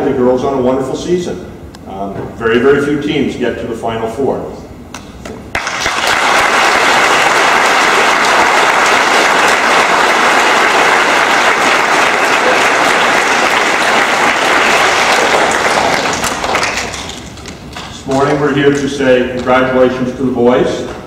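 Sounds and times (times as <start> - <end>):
large audience applauding: 5.5 - 17.9.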